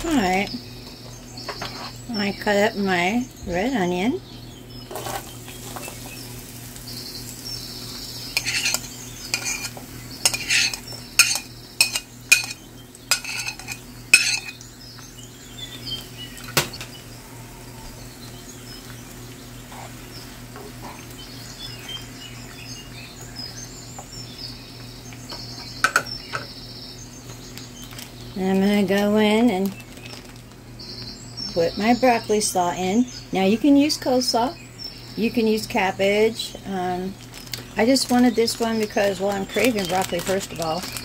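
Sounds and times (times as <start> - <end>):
onion sizzling in oil: 4.0 - 25.8, 37.0 - 41.0
metal utensil scraping frying pan: 8.3 - 14.6.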